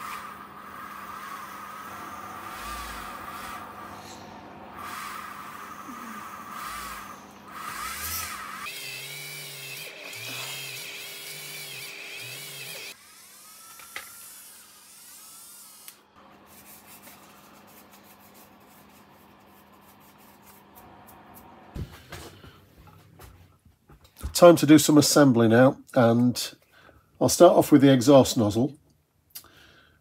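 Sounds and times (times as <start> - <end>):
rotary tool whirring: 0.0 - 16.0.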